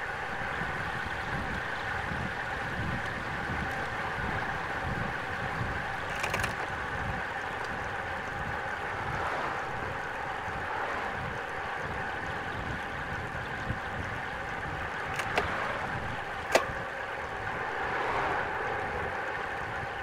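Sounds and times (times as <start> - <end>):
bicycle road noise: 0.0 - 20.0
wind buffeting microphone: 0.0 - 20.0
wind rush: 8.4 - 20.0.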